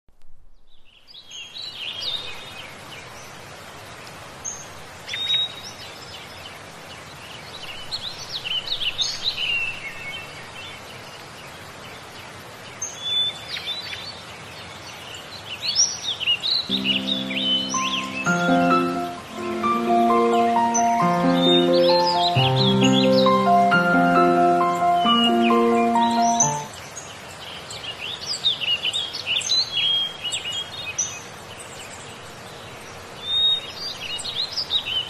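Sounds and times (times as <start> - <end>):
steady background hiss: 0.6 - 29.6
songbirds chirping and singing: 15.2 - 27.0.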